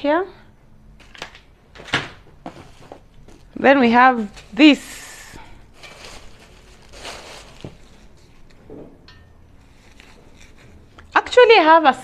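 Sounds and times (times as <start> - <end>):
plastic wrap rustling: 2.5 - 8.7.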